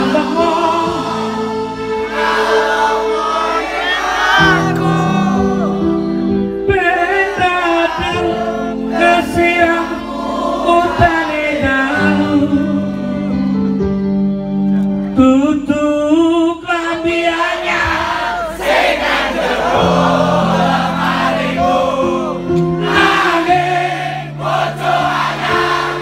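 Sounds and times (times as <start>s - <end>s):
man singing through speakers: 0.0s - 1.2s, 6.6s - 13.2s, 15.1s - 18.0s
crowd singing along: 0.0s - 13.5s, 16.5s - 26.0s
bass and keyboard notes: 0.0s - 26.0s.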